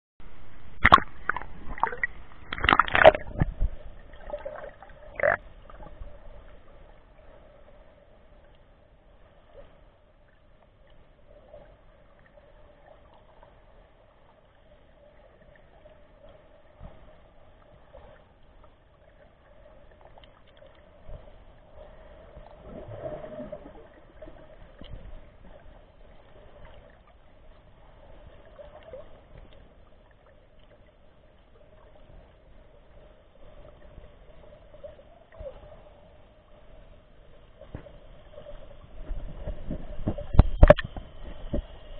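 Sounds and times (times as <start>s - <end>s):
faint steady hum: 0.2s - 41.9s
muffled underwater sound: 0.2s - 41.9s
water splashing: 0.6s - 6.0s.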